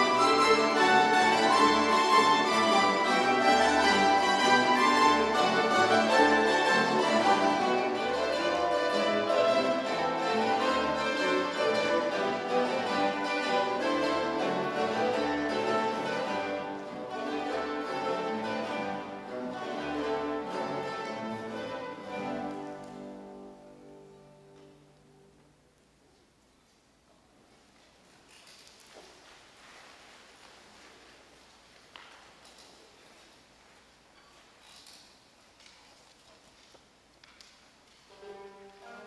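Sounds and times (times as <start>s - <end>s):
mandolin orchestra playing: 0.0s - 25.8s, 37.8s - 39.0s.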